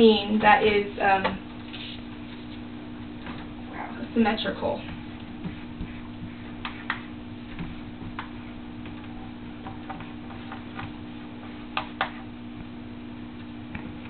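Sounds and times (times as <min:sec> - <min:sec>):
steady low hum: 0:00.0 - 0:14.0
marker scraping on whiteboard: 0:01.6 - 0:02.7, 0:05.4 - 0:07.1.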